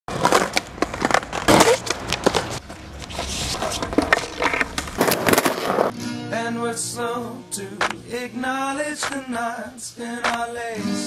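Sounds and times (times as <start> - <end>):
skateboard knocks and slaps: 0.1 - 2.6, 3.6 - 5.9
skateboard wheels rolling: 0.1 - 5.9.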